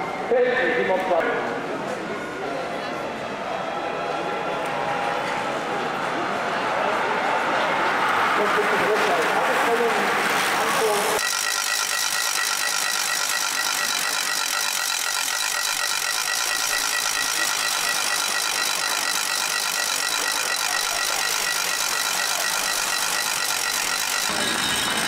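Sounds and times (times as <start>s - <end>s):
bicycle freewheel hubs buzzing: 11.2s - 25.0s.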